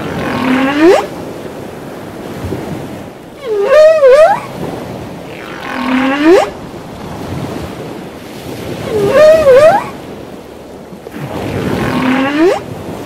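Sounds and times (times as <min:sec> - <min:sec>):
whale song calls: 0:00.0 - 0:01.3, 0:03.3 - 0:07.0, 0:08.7 - 0:10.1, 0:11.2 - 0:12.8
sea and wind: 0:00.0 - 0:13.0.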